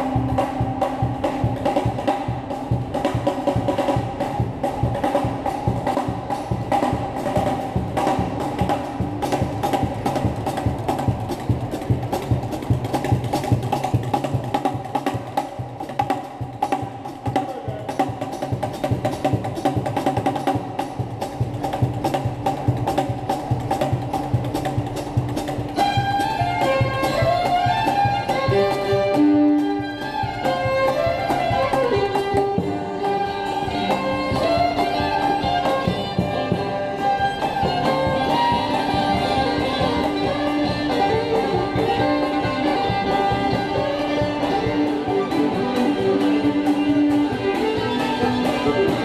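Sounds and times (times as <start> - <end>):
banjo: 0.0 - 49.0
drums and cymbals: 0.0 - 49.0
fiddle: 22.7 - 49.0.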